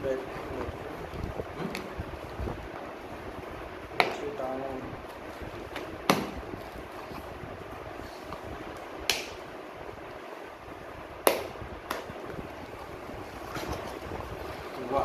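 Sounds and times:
cardboard flaps snapping: 0:05.7 - 0:06.5, 0:09.0 - 0:09.4.

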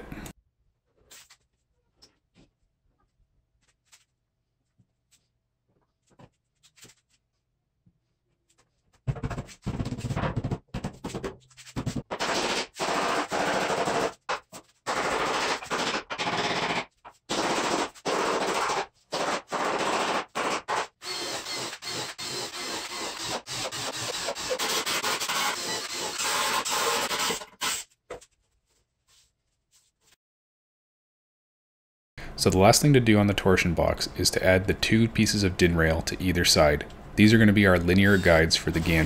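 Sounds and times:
power tools cutting plywood: 0:14.9 - 0:27.8.

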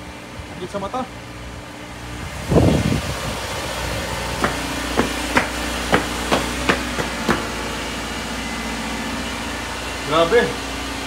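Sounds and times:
car engine idling: 0:03.0 - 0:11.0
sharp engine knocks: 0:04.4 - 0:07.8.

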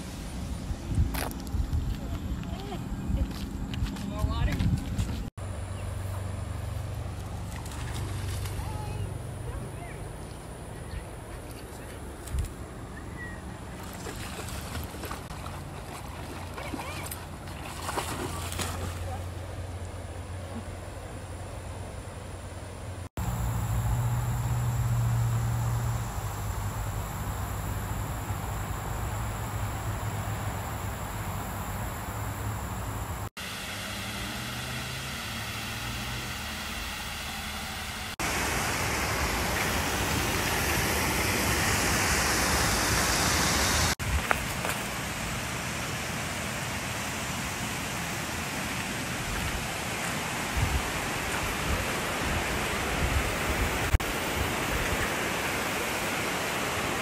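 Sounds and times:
low hum: 0:18.2 - 0:34.2.

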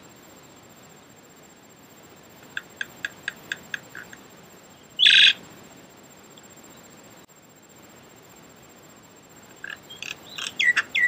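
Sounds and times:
birds chirping: 0:02.4 - 0:05.4, 0:09.5 - 0:11.0
harsh bird call: 0:05.0 - 0:05.4, 0:09.9 - 0:11.0.

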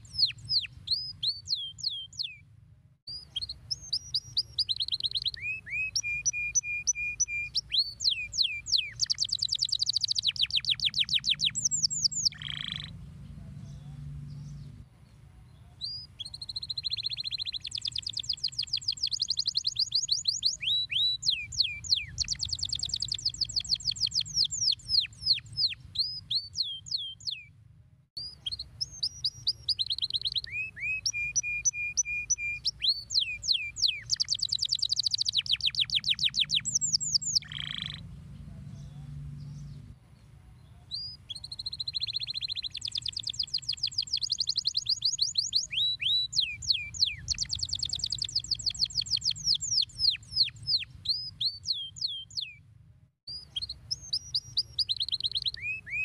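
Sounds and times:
canary singing trills: 0:00.0 - 0:02.4, 0:03.1 - 0:14.8, 0:15.4 - 0:27.5, 0:28.2 - 0:39.9, 0:40.6 - 0:52.6, 0:53.3 - 0:56.0
low steady hum: 0:12.9 - 0:15.7.

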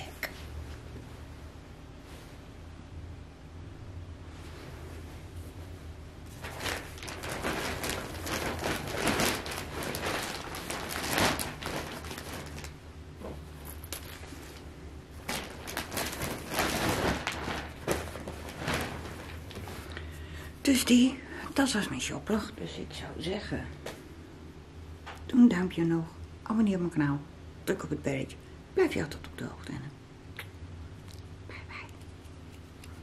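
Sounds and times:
clothing rustling: 0:04.2 - 0:21.0.

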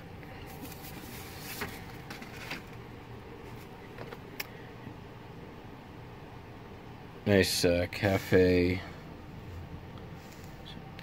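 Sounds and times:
low room hum: 0:00.0 - 0:11.0
paper rustling: 0:00.5 - 0:02.8.

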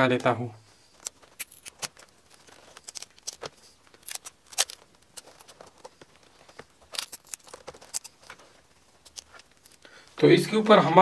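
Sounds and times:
sticky tape ripping and crackling: 0:01.0 - 0:05.9.

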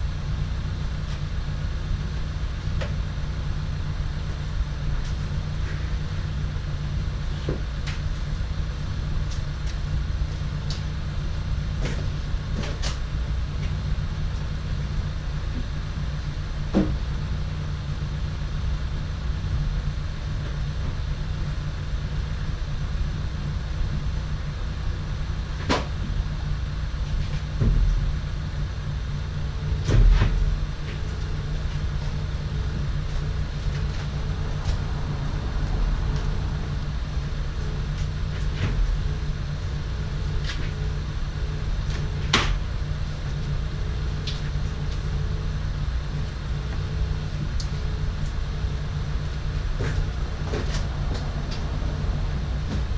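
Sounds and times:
low mechanical drone: 0:00.0 - 0:52.9
knocks and clunks: 0:16.7 - 0:17.1, 0:27.2 - 0:28.1, 0:29.6 - 0:32.2, 0:41.8 - 0:43.4, 0:49.4 - 0:52.9
heavy thump: 0:27.6 - 0:28.1, 0:29.7 - 0:31.1.

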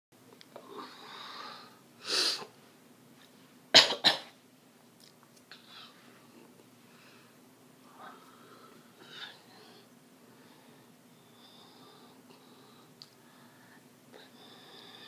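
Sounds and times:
woman coughing: 0:03.8 - 0:04.4
breathing: 0:06.8 - 0:15.0.

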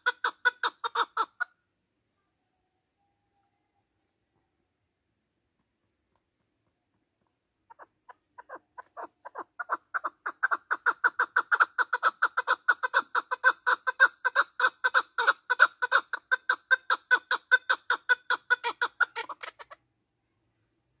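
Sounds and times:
partridge chuck calls: 0:00.0 - 0:01.5, 0:07.6 - 0:19.8.

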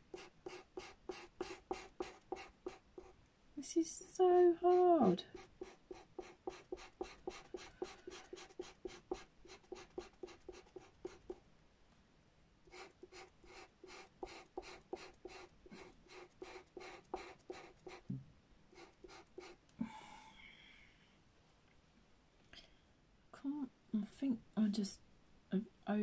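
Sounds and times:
pencil scratching on paper: 0:00.0 - 0:03.2, 0:04.2 - 0:11.4, 0:12.7 - 0:18.1, 0:18.7 - 0:19.6.

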